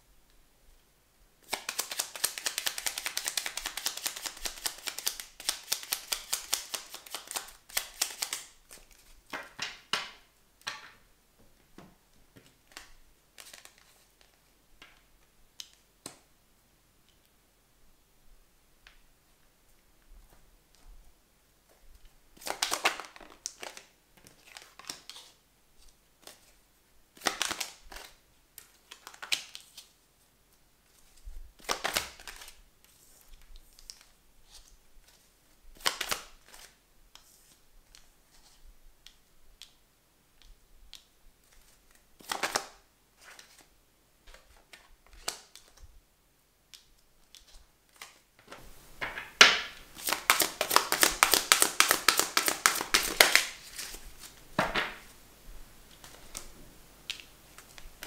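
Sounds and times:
cards flicking in shuffle: 1.4s - 9.9s, 27.2s - 28.2s, 31.6s - 32.6s, 35.8s - 38.6s, 40.4s - 43.7s, 46.8s - 55.1s.

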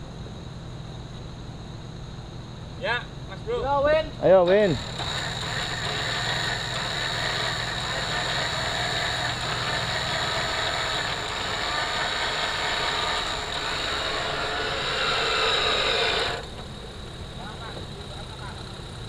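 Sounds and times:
winch motor whining: 4.4s - 19.0s.

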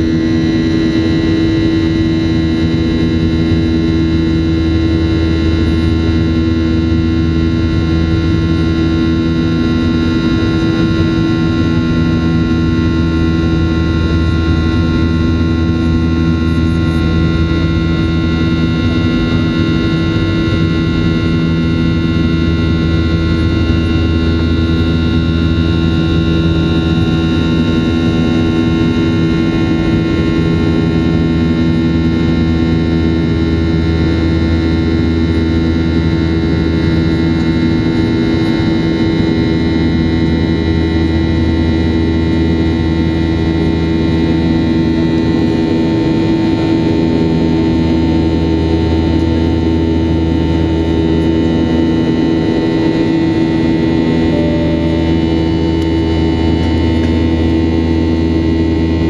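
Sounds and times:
jet engine drone in cabin: 0.0s - 59.0s
engine whining tones: 46.2s - 59.0s.

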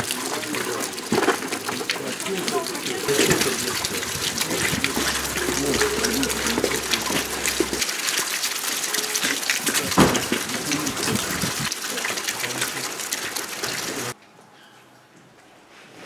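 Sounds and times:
faint men's voices: 0.0s - 7.8s, 9.8s - 12.8s.

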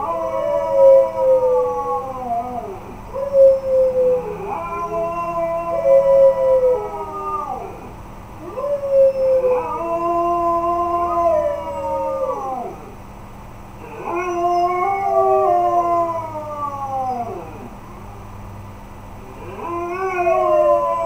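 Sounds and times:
dog howling: 0.0s - 13.0s, 13.8s - 17.8s, 19.3s - 21.0s.

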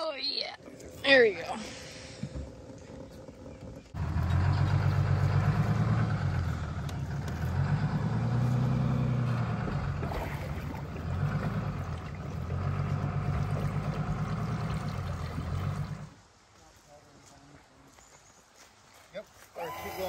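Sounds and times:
engine revving: 1.6s - 16.2s.

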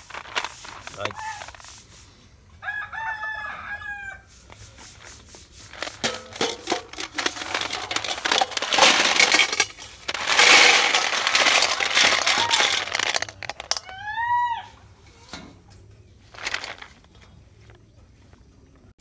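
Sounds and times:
rooster crowing: 2.6s - 4.3s
snail shells rattling on steel: 5.7s - 14.0s, 16.4s - 17.0s.

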